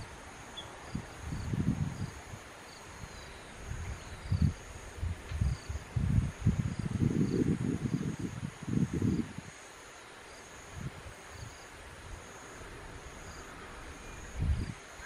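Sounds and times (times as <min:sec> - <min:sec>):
insect chirps: 0:00.0 - 0:15.0
wind buffeting microphone: 0:00.8 - 0:09.5, 0:10.7 - 0:15.0.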